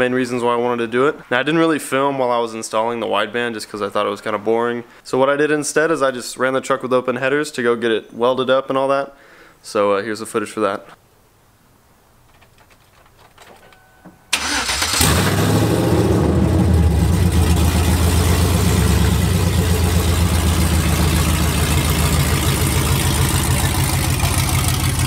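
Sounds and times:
truck engine starting and idling loud: 0:14.3 - 0:25.0.

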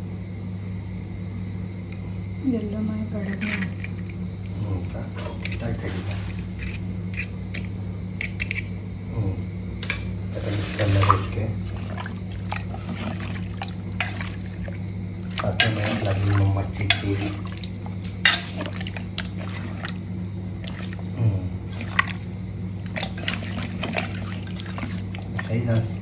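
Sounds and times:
steady low hum: 0:00.0 - 0:26.0
wet sloshing in bowl: 0:05.0 - 0:06.9, 0:10.3 - 0:26.0.

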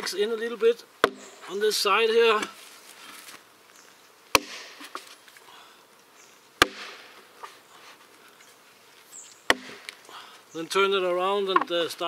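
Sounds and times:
axe striking a log: 0:01.0 - 0:01.5, 0:04.3 - 0:05.1, 0:06.6 - 0:07.2, 0:09.5 - 0:10.0.

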